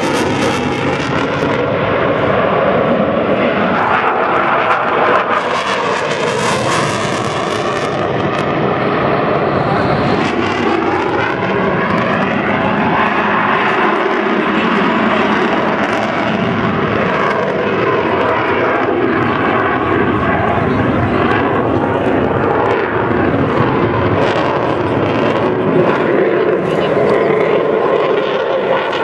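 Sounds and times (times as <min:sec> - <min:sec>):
fighter jet engine noise: 0:00.0 - 0:29.0.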